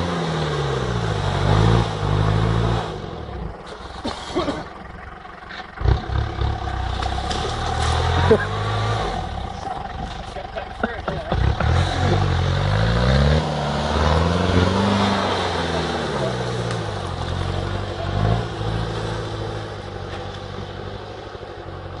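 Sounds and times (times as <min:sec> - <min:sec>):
diesel engine revving: 0:00.0 - 0:22.0.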